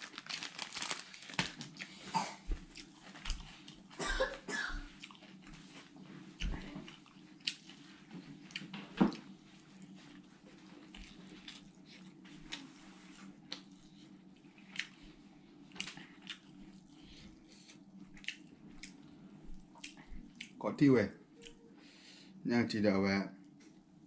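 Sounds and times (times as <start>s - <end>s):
low steady hum: 0.0s - 24.0s
wet chewing: 5.0s - 5.8s, 6.4s - 12.7s, 13.4s - 20.6s.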